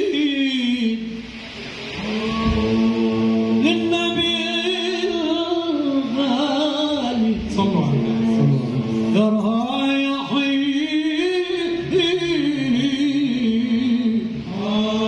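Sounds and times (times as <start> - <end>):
sustained drone voice: 1.0 - 10.3
men chanting unaccompanied: 13.5 - 15.0.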